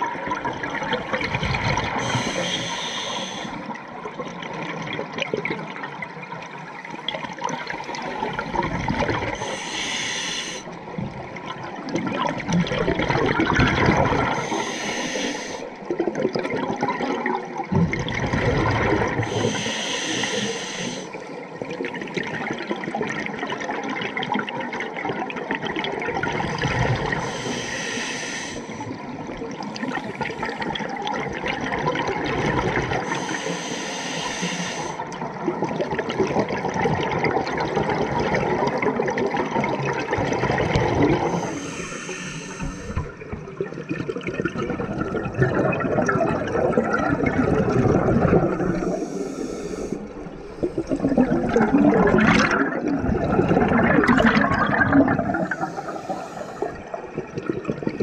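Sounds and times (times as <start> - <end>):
bubbling exhale: 1.2 - 3.7, 13.0 - 15.8, 18.2 - 21.2, 40.0 - 58.0
hissing inhale through regulator: 1.8 - 3.7, 9.3 - 10.8, 14.2 - 15.8, 19.2 - 21.3, 26.6 - 29.0, 29.6 - 30.8, 32.9 - 35.1, 41.1 - 43.4, 48.2 - 51.4, 55.2 - 57.2.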